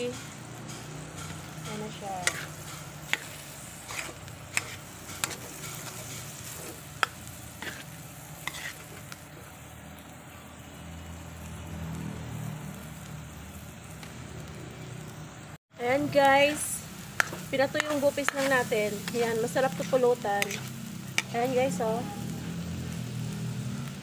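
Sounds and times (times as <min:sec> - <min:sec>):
food sizzling in a pan: 0:00.0 - 0:24.0
utensil scraping a pan: 0:01.1 - 0:09.1, 0:17.2 - 0:21.4.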